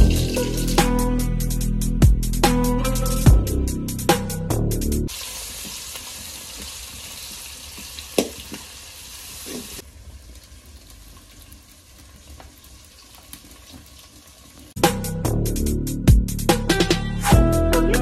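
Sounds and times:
onions sizzling in oil: 5.1 - 14.8.

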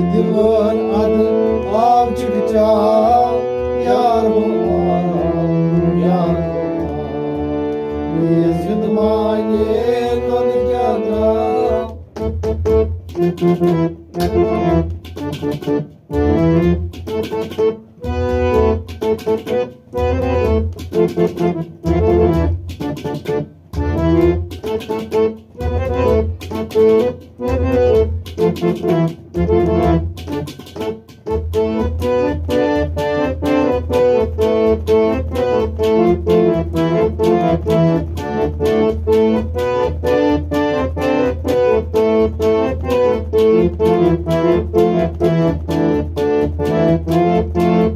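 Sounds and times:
man singing: 0.0 - 6.9, 8.1 - 12.0
harmonium: 0.0 - 47.9.

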